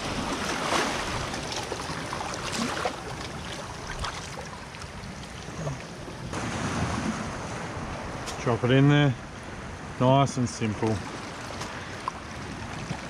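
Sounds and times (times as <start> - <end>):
sea water washing among rocks: 0.0 - 5.4
water splashes: 0.0 - 8.7, 10.2 - 13.0.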